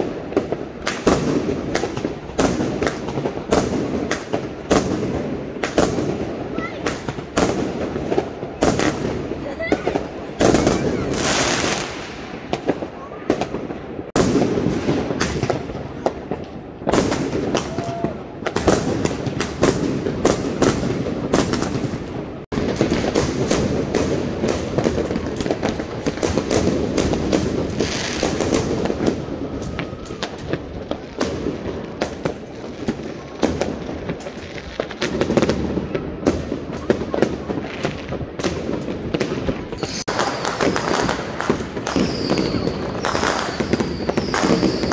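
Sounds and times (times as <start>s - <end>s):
fireworks banging and crackling: 0.0s - 44.9s
firework whistles: 8.7s - 13.5s, 27.7s - 30.8s, 39.5s - 44.9s.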